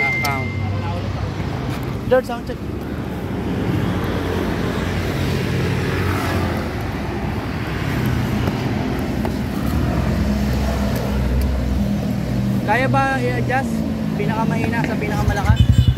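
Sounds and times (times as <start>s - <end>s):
motorcycle engine idling: 15.4s - 15.9s.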